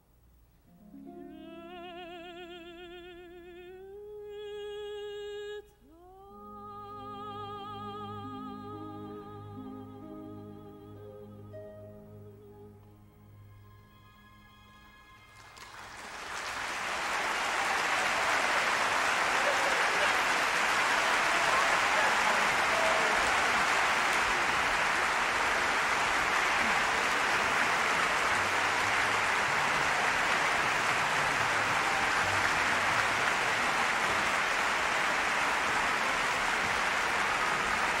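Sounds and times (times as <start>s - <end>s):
audience applauding: 15.2s - 38.0s.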